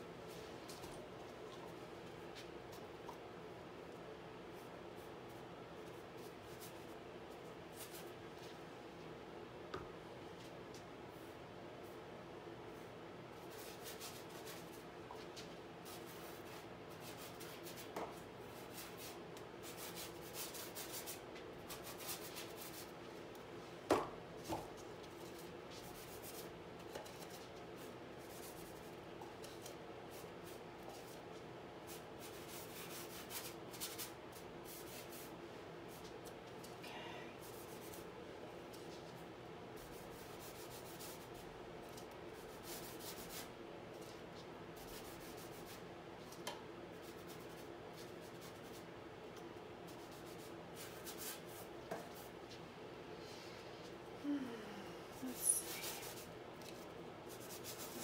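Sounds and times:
paintbrush scraping on canvas: 55.2 - 58.0.

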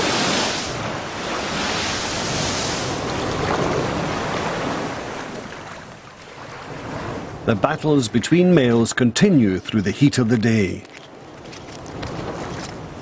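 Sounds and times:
surf breaking on rocky shore: 0.0 - 7.6.

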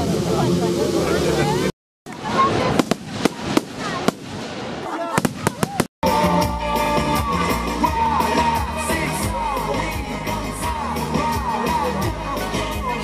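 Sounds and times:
dance music with singing: 6.0 - 13.0.

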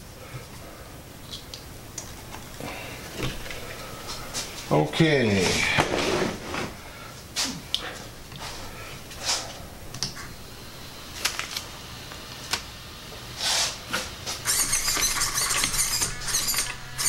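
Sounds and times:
steering servo whirring: 14.4 - 17.0.

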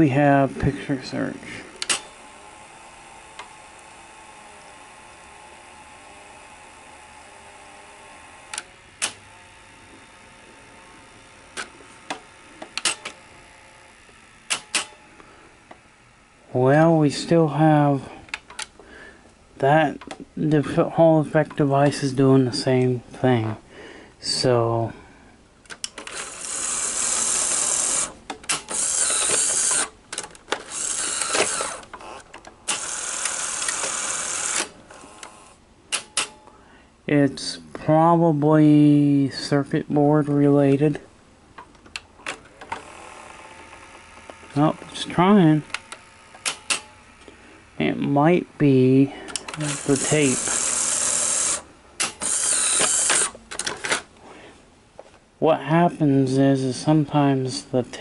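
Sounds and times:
tape transport humming: 0.0 - 58.0
sharp mechanical clicks: 1.8 - 2.3, 8.4 - 9.4, 11.5 - 13.2, 14.1 - 15.0, 18.3 - 18.7, 25.6 - 36.5, 45.7 - 47.2, 49.3 - 54.1.

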